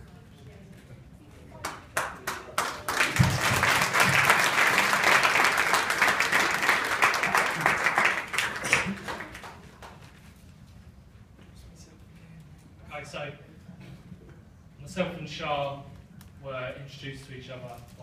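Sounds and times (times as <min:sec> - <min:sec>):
roomful of people applauding: 0:01.6 - 0:10.3.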